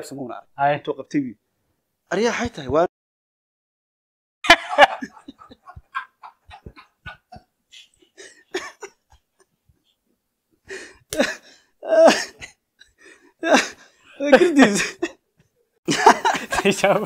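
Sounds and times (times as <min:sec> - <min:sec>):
men laughing: 0:04.4 - 0:09.5, 0:11.1 - 0:15.2, 0:15.9 - 0:17.0.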